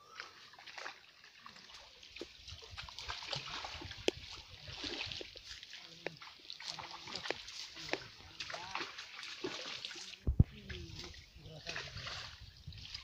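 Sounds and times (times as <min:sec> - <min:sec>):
pond water splashing and dripping: 0:00.0 - 0:13.0.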